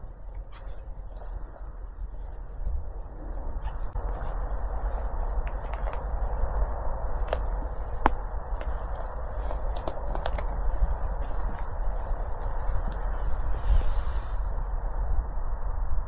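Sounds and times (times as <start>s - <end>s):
twigs cracking underfoot: 0.0s - 13.9s
footsteps on forest floor: 2.2s - 14.4s.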